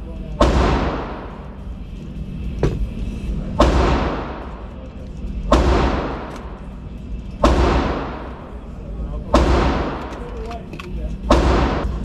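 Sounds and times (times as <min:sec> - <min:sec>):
loud gunshots echoing: 0:00.4 - 0:01.5, 0:03.6 - 0:04.7, 0:05.4 - 0:06.6, 0:07.3 - 0:08.6, 0:09.2 - 0:10.3, 0:11.2 - 0:12.0.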